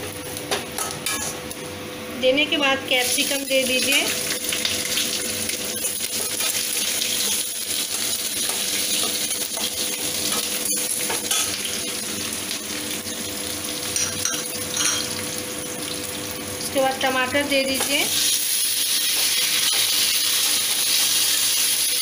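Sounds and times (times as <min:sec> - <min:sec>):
vegetables sizzling in hot oil: 0:02.9 - 0:22.0.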